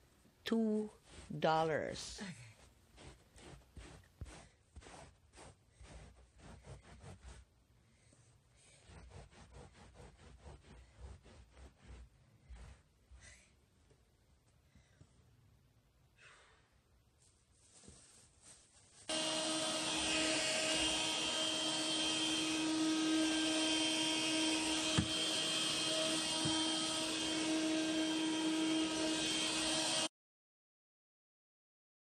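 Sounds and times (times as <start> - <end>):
vacuum cleaner whining: 19.1 - 30.1.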